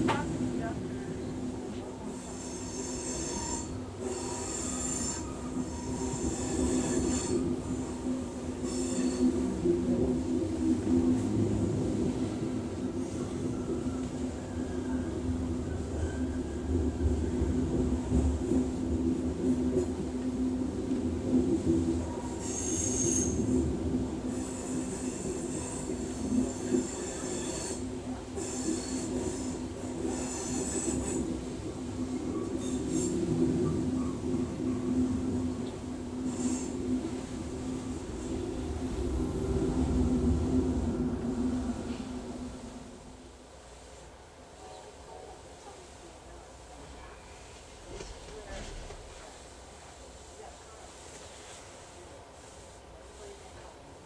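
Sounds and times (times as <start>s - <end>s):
freight train cars rumbling past: 0.0s - 54.0s
railcar wheels squealing: 2.0s - 9.7s, 13.0s - 17.6s, 22.1s - 31.4s, 32.3s - 33.4s, 36.2s - 36.8s.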